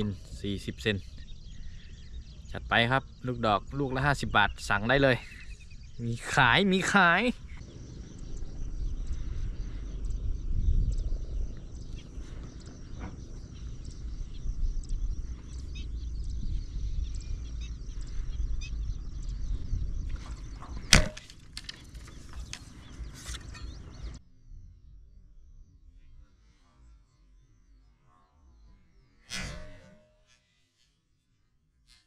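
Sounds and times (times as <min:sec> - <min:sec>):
low rumble: 0:00.0 - 0:26.6
faint high whine: 0:00.0 - 0:31.7
speargun firing snap: 0:20.9 - 0:21.4.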